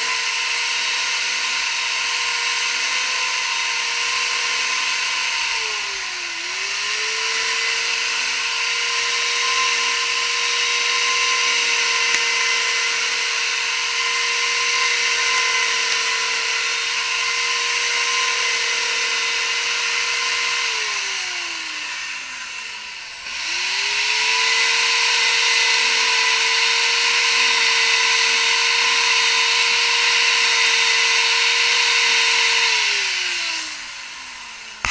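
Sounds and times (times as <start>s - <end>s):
electric power tool whining: 0.0s - 34.9s.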